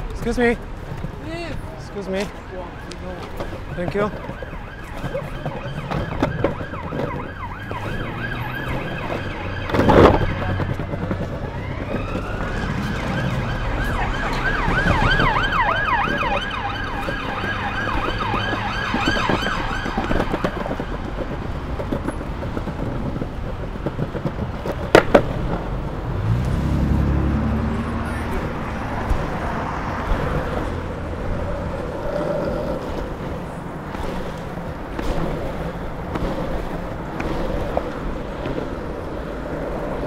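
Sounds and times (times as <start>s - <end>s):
longboard wheels rumbling on pavement: 0.0s - 40.0s
emergency vehicle siren: 1.7s - 21.9s, 25.9s - 33.6s.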